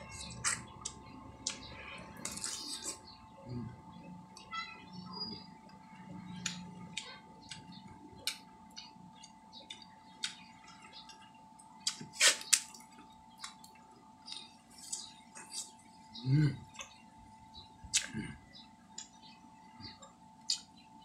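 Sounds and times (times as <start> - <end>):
man chewing: 0.0 - 3.9, 5.6 - 19.2, 19.9 - 20.8
wet mouth clicks and smacks: 20.5 - 20.7.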